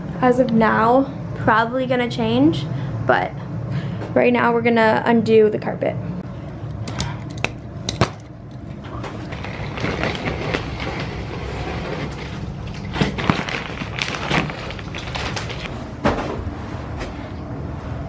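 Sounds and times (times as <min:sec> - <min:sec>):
sharp plastic crackles: 0:08.9 - 0:15.7
plastic wrapping crinkling: 0:09.2 - 0:15.7.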